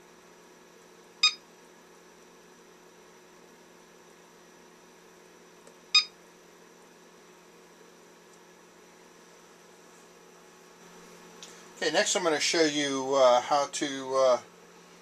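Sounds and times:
faint steady hum: 0:00.0 - 0:15.0
battery charger beep: 0:01.2 - 0:01.4, 0:05.9 - 0:06.2.

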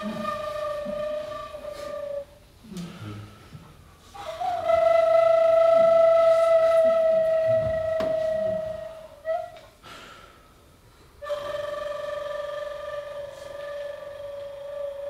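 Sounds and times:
wooden flute long notes: 0:00.0 - 0:10.1, 0:11.2 - 0:15.0.

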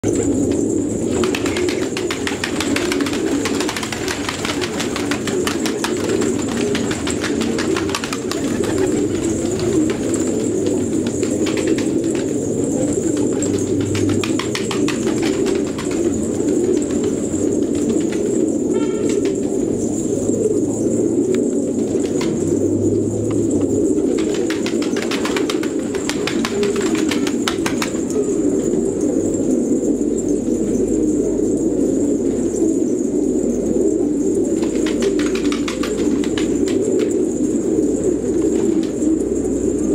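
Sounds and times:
wing flaps: 0:00.0 - 0:19.8, 0:21.5 - 0:28.8, 0:34.5 - 0:37.6
pigeons cooing: 0:00.0 - 0:39.9.

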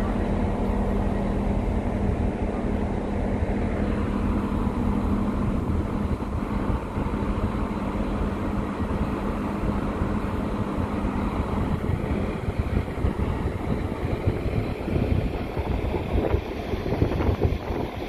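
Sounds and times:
train engine humming: 0:00.0 - 0:18.0.

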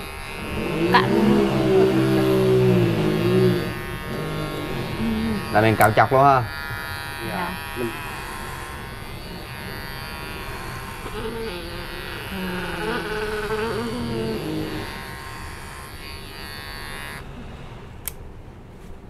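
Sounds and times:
electric hair clipper buzzing: 0:00.0 - 0:17.4
low voice: 0:00.6 - 0:03.6.

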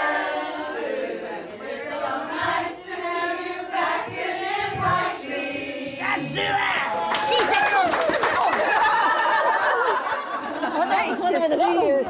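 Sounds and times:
crowd talking and calling out: 0:06.0 - 0:08.6, 0:10.7 - 0:12.0.

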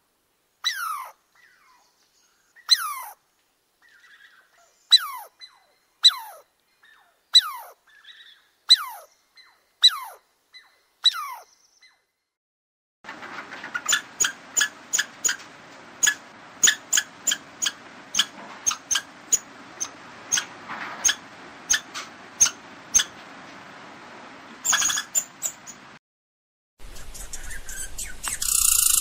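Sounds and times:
small animal chirping: 0:00.6 - 0:01.8, 0:02.6 - 0:03.2, 0:03.8 - 0:12.0, 0:16.0 - 0:23.1, 0:24.6 - 0:25.8, 0:26.9 - 0:29.0.

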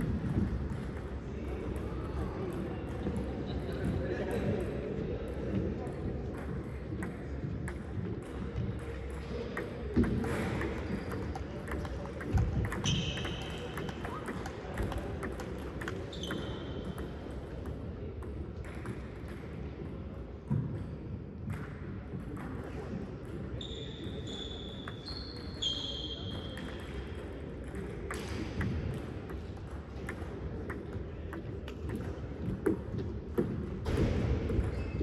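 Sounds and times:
background din in a hall: 0:00.0 - 0:35.0
shoe squeaks on court: 0:12.7 - 0:14.2, 0:15.8 - 0:17.0, 0:23.6 - 0:26.7, 0:34.6 - 0:35.0.

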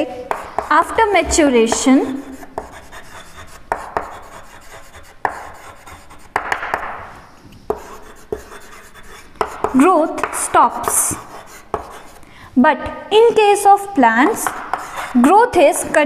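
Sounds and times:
chalk scratching on blackboard: 0:00.3 - 0:01.1, 0:02.0 - 0:12.2, 0:14.2 - 0:15.9
chalk tapping on board: 0:00.3 - 0:01.1, 0:01.7 - 0:07.1, 0:07.7 - 0:12.2, 0:14.2 - 0:15.9.

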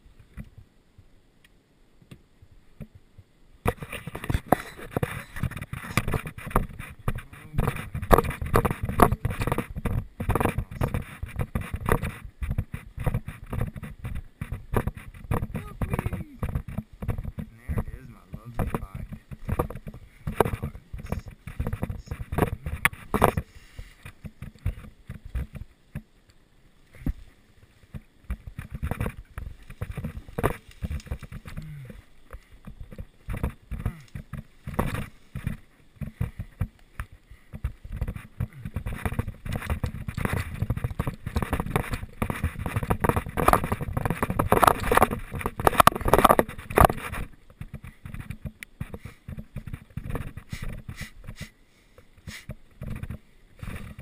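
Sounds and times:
leaves and twigs crackling: 0:02.6 - 0:54.0
footsteps through brush: 0:26.8 - 0:51.5.

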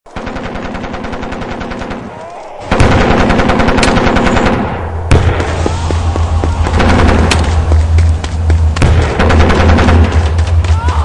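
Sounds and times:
machine-gun fire: 0:00.2 - 0:05.6, 0:06.6 - 0:07.8, 0:08.8 - 0:10.6.

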